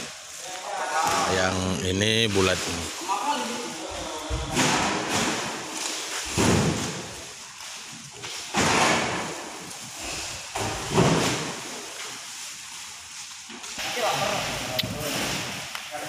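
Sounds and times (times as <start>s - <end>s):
heavy sacks thudding onto truck bed: 4.4s - 7.3s, 8.4s - 9.5s, 10.5s - 11.7s.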